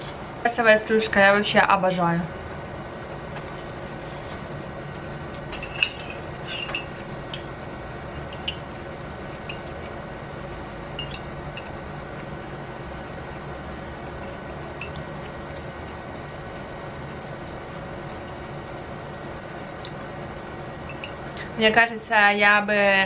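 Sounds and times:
low room hum: 0:00.0 - 0:23.0
cutlery clinking against glass: 0:05.5 - 0:07.5, 0:08.2 - 0:08.6, 0:11.0 - 0:11.7, 0:14.8 - 0:15.1.

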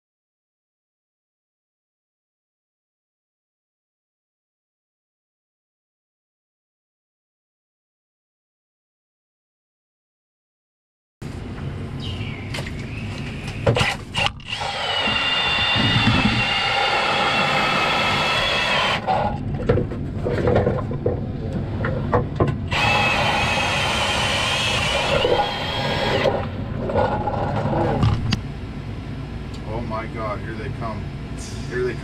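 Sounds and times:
knocks and clatter: 0:13.5 - 0:16.8, 0:19.1 - 0:22.7
cordless drill motor whine: 0:13.8 - 0:19.4, 0:22.7 - 0:26.5.

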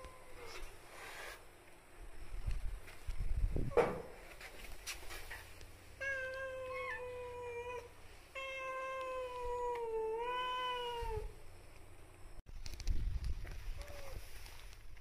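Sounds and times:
cat meowing: 0:06.0 - 0:11.3.

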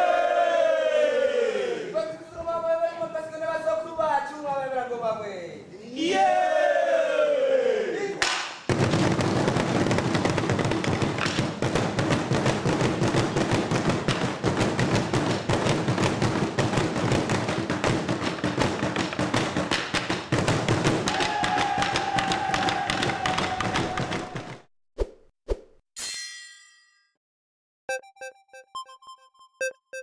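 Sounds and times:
drummers beating wooden drums: 0:08.7 - 0:24.7.

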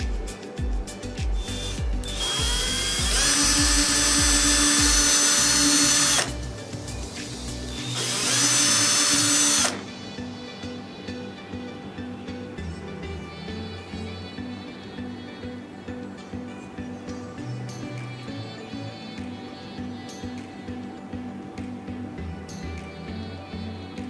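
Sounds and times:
background music with steady beat: 0:00.0 - 0:24.0
power drill boring into wood: 0:01.4 - 0:06.4, 0:07.8 - 0:09.9.

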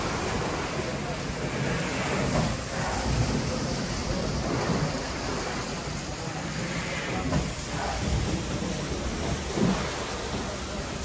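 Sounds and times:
steam hissing: 0:00.0 - 0:11.0.

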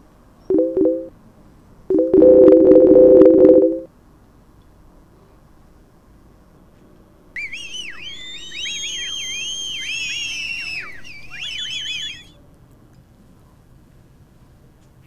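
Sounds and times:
high-pitched swooping whistles: 0:07.4 - 0:12.3.

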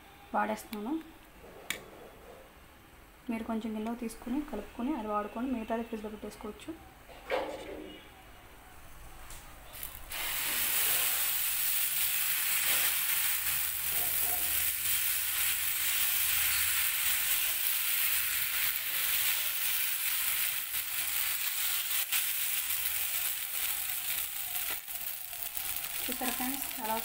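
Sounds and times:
batter sizzling on hot pan: 0:09.7 - 0:27.0.

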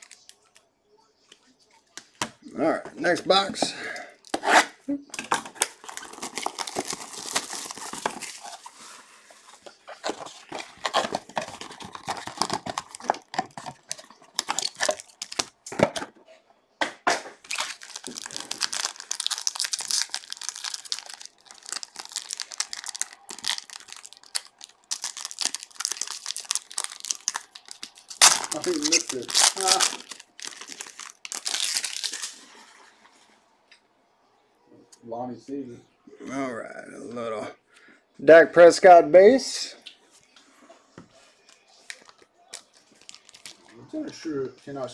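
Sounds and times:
foil wrapper crinkling and tearing: 0:00.0 - 0:00.6, 0:05.2 - 0:08.9, 0:09.9 - 0:15.6, 0:17.4 - 0:32.6, 0:41.9 - 0:43.7.

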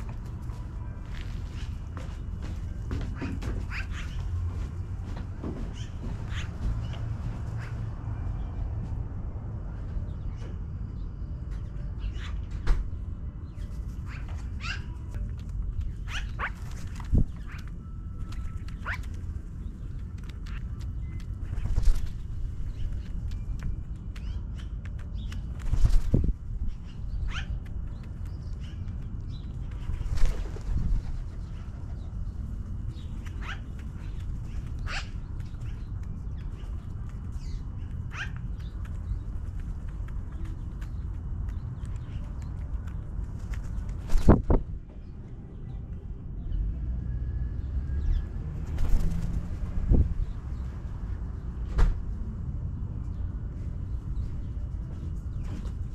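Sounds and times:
steady low rumble: 0:00.0 - 0:55.9
magpies calling: 0:02.9 - 0:04.5, 0:05.6 - 0:08.0, 0:13.9 - 0:25.5, 0:26.7 - 0:30.4, 0:31.2 - 0:43.1.

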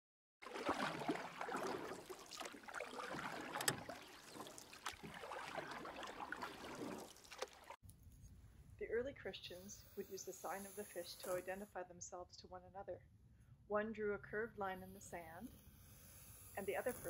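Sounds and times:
water splashing against boat hull: 0:00.4 - 0:07.8.

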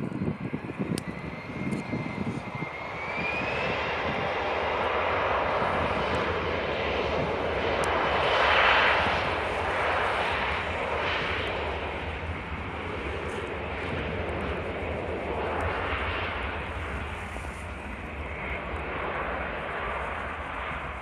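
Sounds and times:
jet engines roaring: 0:00.0 - 0:21.0.

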